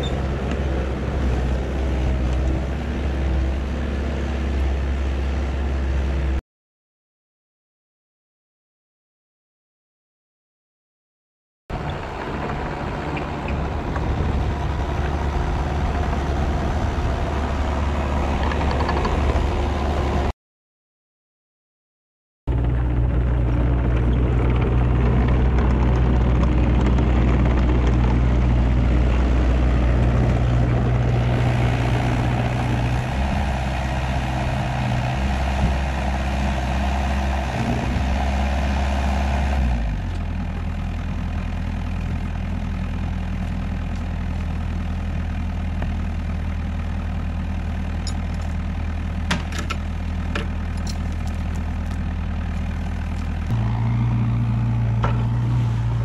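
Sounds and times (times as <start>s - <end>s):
excavator diesel engine: 0.0s - 6.4s, 11.7s - 20.3s, 22.5s - 56.0s
log chain metal clinks: 48.0s - 48.7s, 50.4s - 53.5s.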